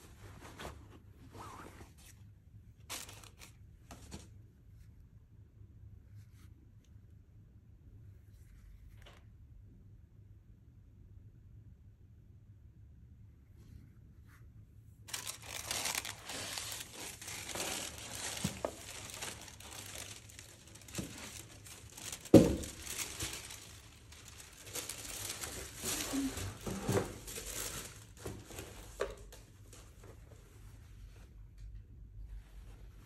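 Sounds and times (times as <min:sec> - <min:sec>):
paper crinkling and rustling: 0:02.9 - 0:04.3, 0:15.1 - 0:30.2.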